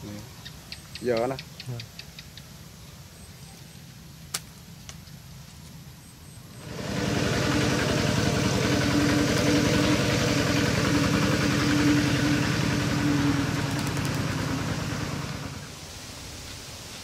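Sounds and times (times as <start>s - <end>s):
small engine idling: 6.5s - 15.8s.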